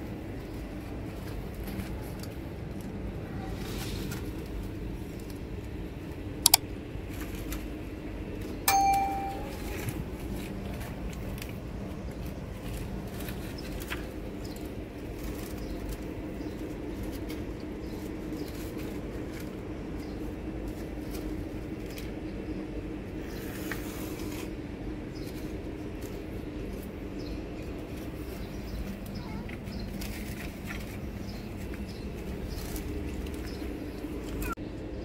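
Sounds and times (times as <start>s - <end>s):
metallic clang: 8.7s - 9.9s.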